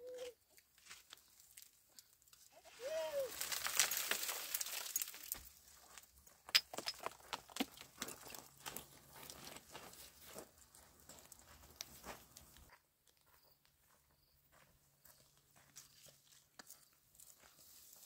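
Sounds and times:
stones clicking underfoot: 0:03.3 - 0:12.7
footsteps on gravel: 0:03.3 - 0:18.0.

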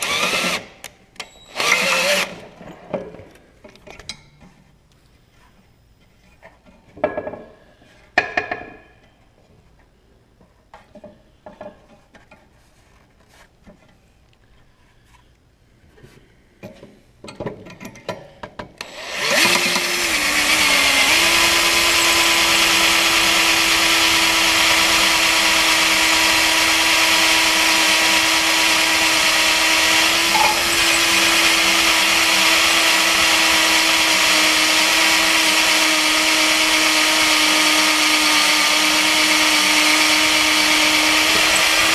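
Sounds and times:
cordless drill boring steel: 0:00.0 - 0:02.4, 0:18.8 - 0:41.9
metal parts clinking: 0:30.3 - 0:31.0.

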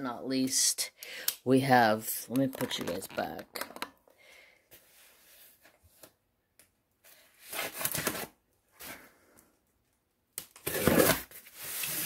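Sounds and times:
cardboard scraping: 0:10.6 - 0:12.0.

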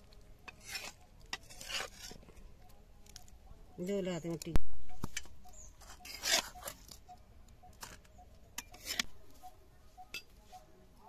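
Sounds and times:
metal spoon scraping pan: 0:00.5 - 0:02.3, 0:05.8 - 0:07.0, 0:08.6 - 0:09.1.

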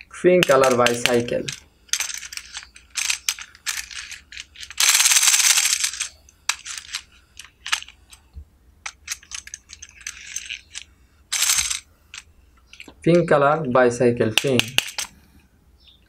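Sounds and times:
plastic toy clicks and clatters: 0:00.4 - 0:08.0, 0:08.9 - 0:12.9, 0:14.3 - 0:15.1.

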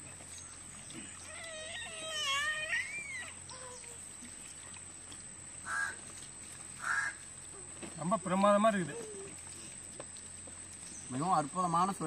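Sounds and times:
crow gliding call: 0:05.6 - 0:06.0, 0:06.8 - 0:07.2
crow cawing: 0:05.7 - 0:06.0, 0:06.8 - 0:07.2.

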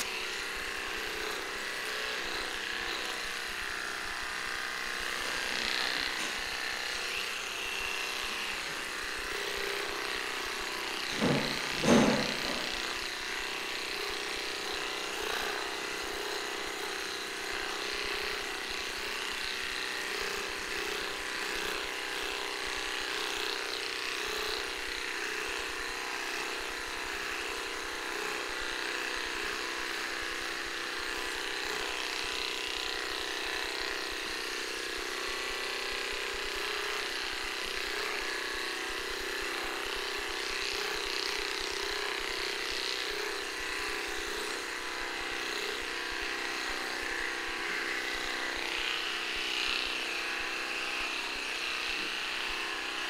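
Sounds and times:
electric clippers buzzing: 0:00.0 - 0:53.0.

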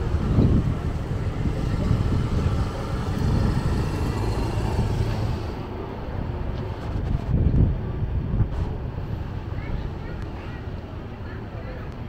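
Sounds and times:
motor scooter passing: 0:00.0 - 0:06.5
low rumble of traffic: 0:00.0 - 0:12.0.

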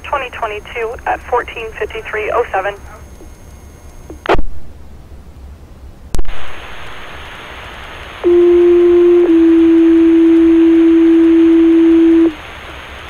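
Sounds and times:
radio carrier hiss: 0:00.0 - 0:03.3, 0:06.2 - 0:13.0.

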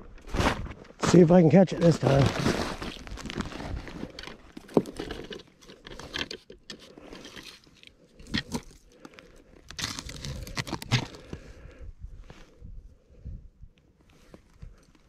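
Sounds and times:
crunching of slush and ice: 0:00.3 - 0:11.6.

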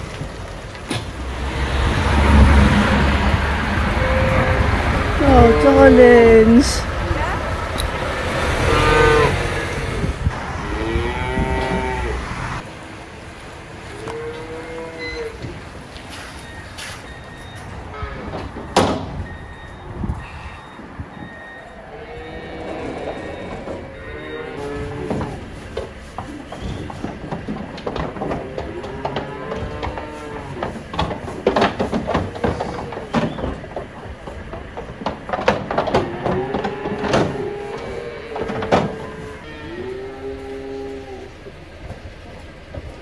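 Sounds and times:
low vehicle rumble: 0:00.0 - 0:43.0
metal clanks and bangs: 0:25.0 - 0:39.4.

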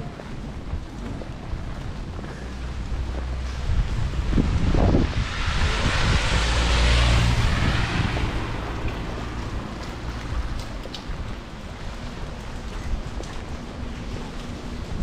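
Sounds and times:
wind rumble on microphone: 0:00.0 - 0:15.0
tyres hissing on wet road: 0:02.4 - 0:12.3.

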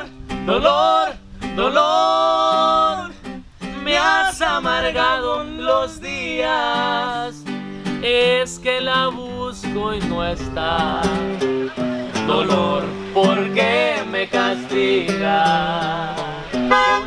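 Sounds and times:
strummed acoustic guitar: 0:00.0 - 0:17.0
young man singing: 0:00.0 - 0:17.0.

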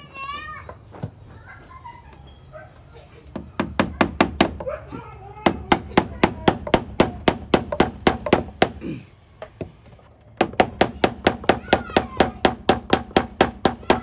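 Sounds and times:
hammer striking staple into wood: 0:05.5 - 0:08.8, 0:10.4 - 0:14.0.

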